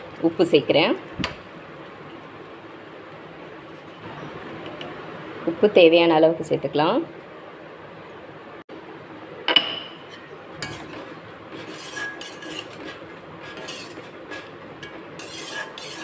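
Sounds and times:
metal ladle clinking and scraping: 0:10.0 - 0:16.0.

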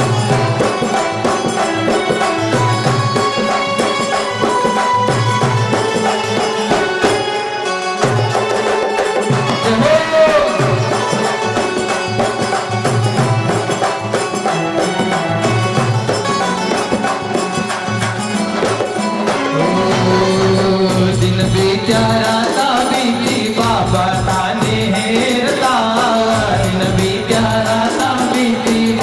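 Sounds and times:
dholak drumming: 0:00.0 - 0:29.0
keyboard melody: 0:00.0 - 0:29.0
electronic pad percussion: 0:08.1 - 0:29.0.

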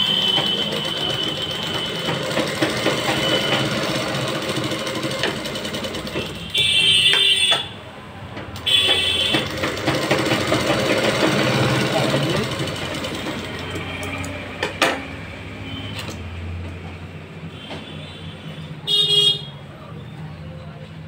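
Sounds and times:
sewing machine stitching: 0:00.0 - 0:07.0, 0:08.6 - 0:14.3.

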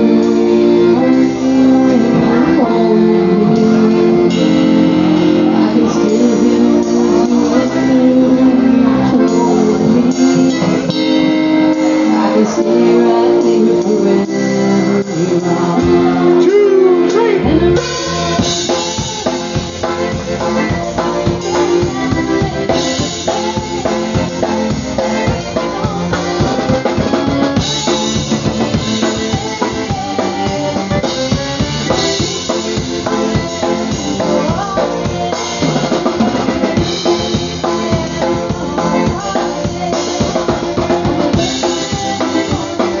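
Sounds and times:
concertina: 0:00.0 - 0:43.0
guitar: 0:00.0 - 0:43.0
person singing: 0:00.0 - 0:43.0
drum beat: 0:17.8 - 0:43.0.

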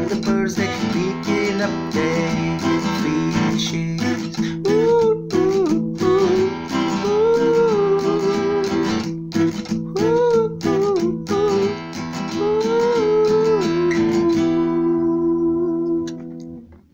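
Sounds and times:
man singing wordless melody: 0:00.0 - 0:16.4
acoustic guitar strumming: 0:00.0 - 0:16.9.

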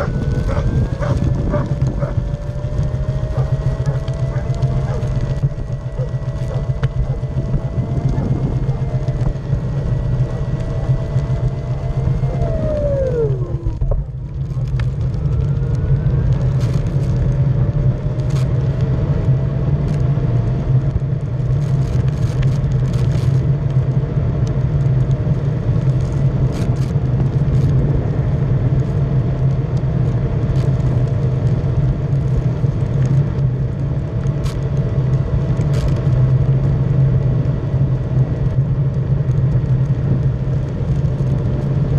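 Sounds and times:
electric motor whining: 0:00.0 - 0:14.8
tyre rumble on asphalt: 0:00.0 - 0:41.9.

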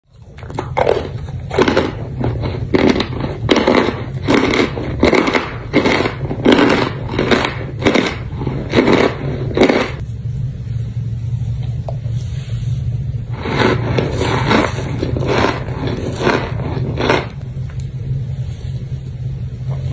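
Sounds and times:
chewing crunches: 0:00.1 - 0:10.0, 0:13.4 - 0:17.4
low hum: 0:00.1 - 0:19.9.

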